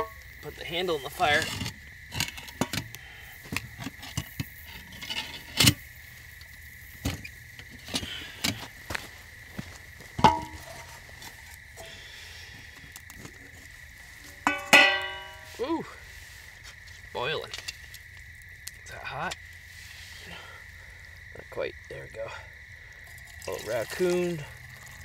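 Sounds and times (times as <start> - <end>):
insect trill: 0.0 - 25.0
metal cookware clinking: 10.2 - 10.9, 14.4 - 15.5.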